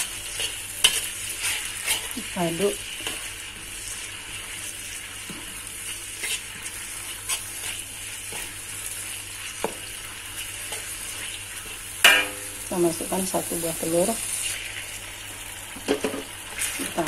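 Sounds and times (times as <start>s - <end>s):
food sizzling in hot oil: 0.0s - 17.0s
metal spatula tapping and scraping: 0.4s - 2.2s, 12.0s - 12.6s.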